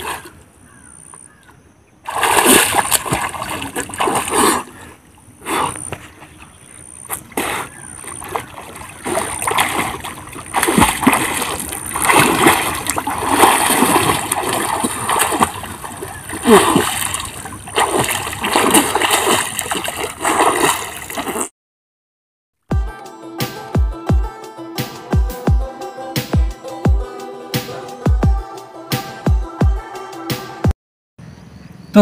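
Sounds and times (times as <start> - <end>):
water splashing from swimming: 2.1 - 21.5.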